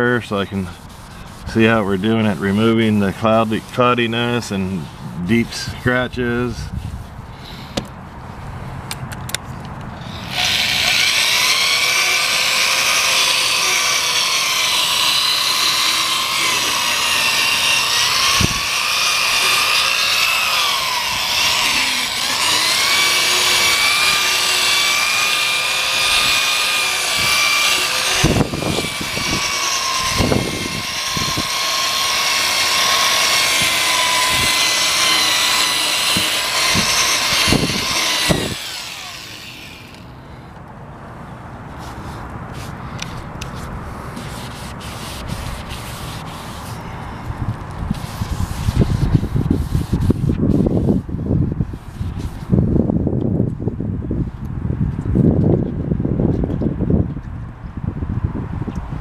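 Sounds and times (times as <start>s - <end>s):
sanding pad on plastic: 0.8s - 4.4s, 10.1s - 40.0s, 41.8s - 46.8s, 47.9s - 51.0s
electric drill motor whine: 10.0s - 40.1s.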